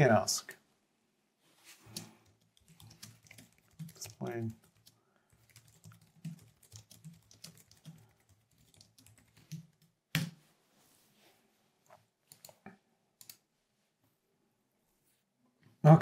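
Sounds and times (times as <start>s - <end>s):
typing on keyboard: 1.9s - 10.3s, 12.3s - 12.6s.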